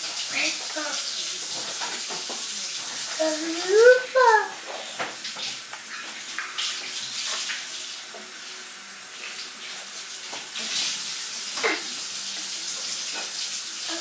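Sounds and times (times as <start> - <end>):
child's vocal sound: 3.2 - 5.0.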